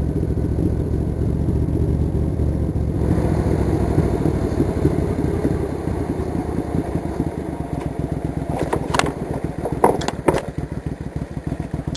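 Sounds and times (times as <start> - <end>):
motorcycle engine running: 0.0 - 11.9
sharp clattering knocks: 7.8 - 10.7.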